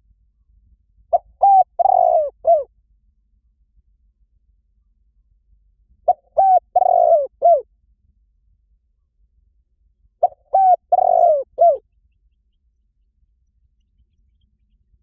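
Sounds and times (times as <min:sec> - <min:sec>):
dove cooing: 0:01.1 - 0:02.7, 0:06.1 - 0:07.6, 0:10.2 - 0:11.8.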